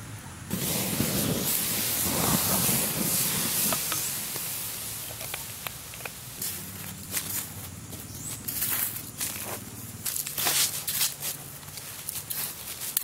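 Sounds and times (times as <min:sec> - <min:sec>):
water hissing on hot coals: 0:00.3 - 0:13.0
small pops: 0:01.5 - 0:07.5.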